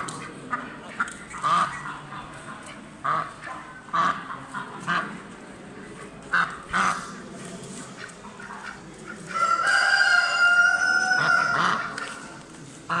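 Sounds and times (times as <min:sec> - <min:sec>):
ducks quacking: 0:00.0 - 0:05.2, 0:06.3 - 0:07.2, 0:07.8 - 0:09.3
rooster crowing: 0:09.4 - 0:11.8.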